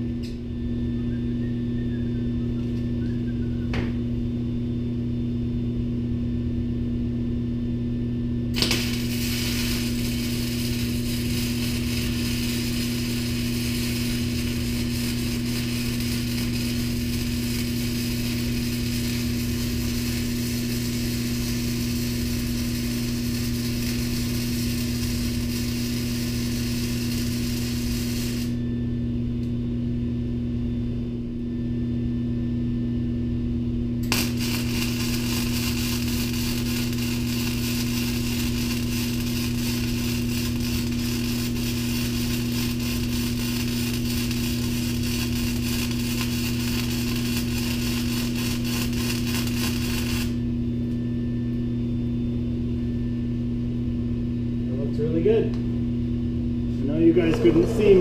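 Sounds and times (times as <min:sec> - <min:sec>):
steady hum: 0:00.0 - 0:58.0
welder arc crackling: 0:08.5 - 0:28.6, 0:34.0 - 0:50.5, 0:57.0 - 0:58.0.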